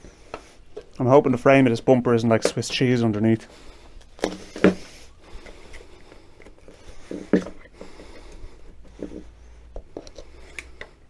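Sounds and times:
screwdriver scraping rubber: 0:04.0 - 0:11.0.

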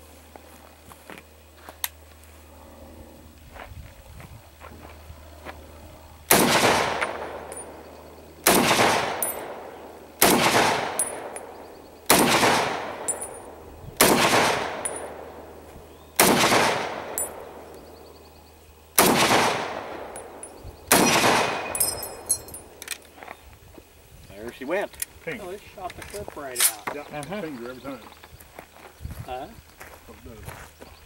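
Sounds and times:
rifle shots with echo: 0:06.3 - 0:15.6, 0:16.2 - 0:17.7, 0:19.0 - 0:22.7
metallic ping of clip ejecting: 0:20.2 - 0:22.9.

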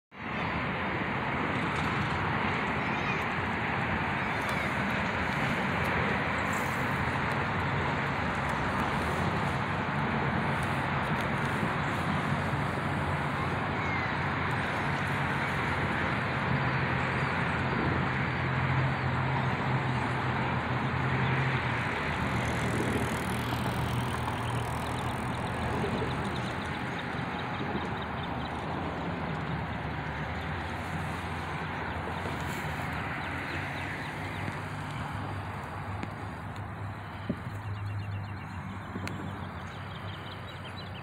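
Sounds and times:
outdoor traffic noise: 0:00.1 - 0:41.0
vehicle engine humming: 0:00.5 - 0:41.0.

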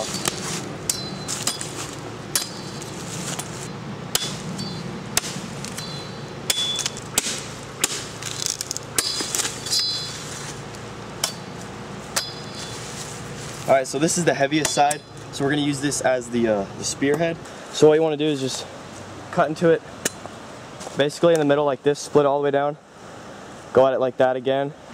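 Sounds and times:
machete chopping branches: 0:00.0 - 0:12.9, 0:14.5 - 0:15.2.

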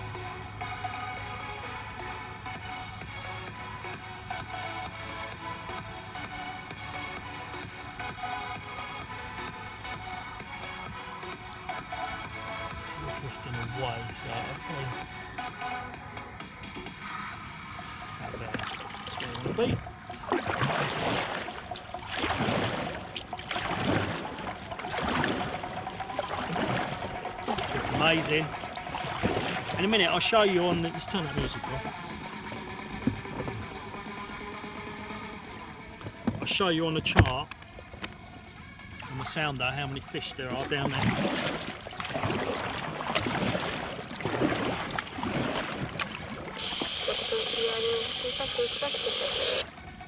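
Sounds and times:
kayak paddle splashing in water: 0:17.8 - 0:33.9, 0:40.4 - 0:50.0.

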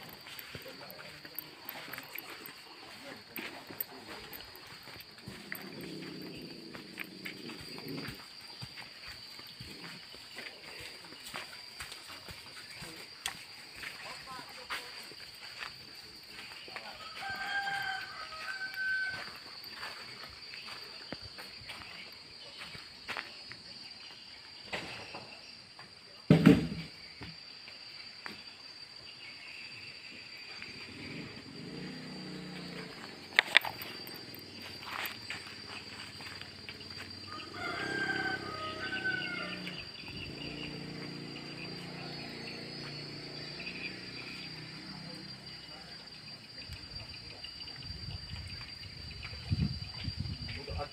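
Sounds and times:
footsteps: 0:00.0 - 0:23.3, 0:32.6 - 0:38.8
high-pitched insect drone: 0:00.0 - 0:26.0, 0:26.8 - 0:50.9
rooster crowing: 0:16.8 - 0:19.9, 0:36.8 - 0:40.4
loud thump: 0:26.3 - 0:26.9.

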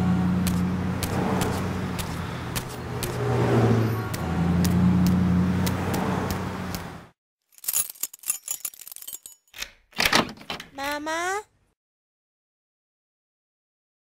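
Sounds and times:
road traffic engine hum: 0:00.0 - 0:07.2
sharp clicks and taps: 0:04.1 - 0:07.0.

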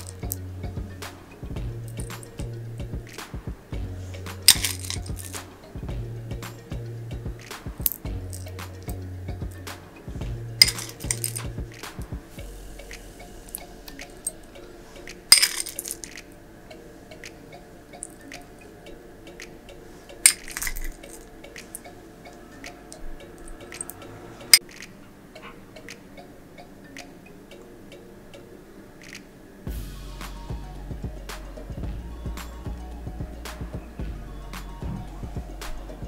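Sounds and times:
soft background music: 0:00.0 - 0:36.0
metal spoon clinking: 0:04.3 - 0:05.7, 0:10.6 - 0:11.9, 0:15.2 - 0:16.3, 0:20.2 - 0:22.0.

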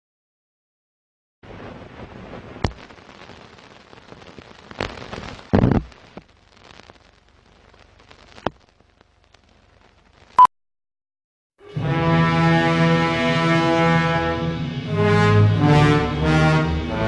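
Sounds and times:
film crackle hiss: 0:01.4 - 0:10.4
sharp pops and clicks: 0:02.6 - 0:10.5.

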